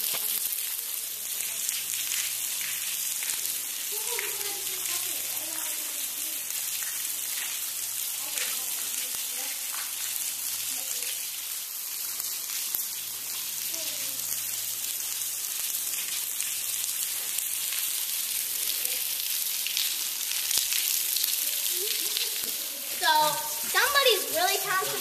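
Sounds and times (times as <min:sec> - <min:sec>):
waterfall spattering on rock: 0:00.0 - 0:00.7, 0:01.3 - 0:10.2, 0:15.4 - 0:25.0.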